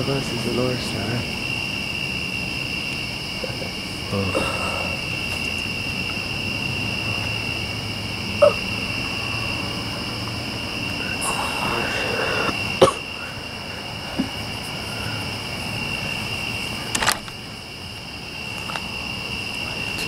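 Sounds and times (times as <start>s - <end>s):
night insects chirring: 0.0s - 20.0s
person coughing: 12.8s - 13.1s.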